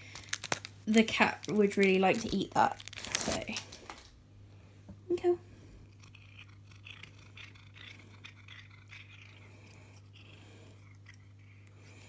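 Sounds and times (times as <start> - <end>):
low steady hum: 0.0 - 12.0
cat chewing wet mouth clicks: 5.9 - 11.8.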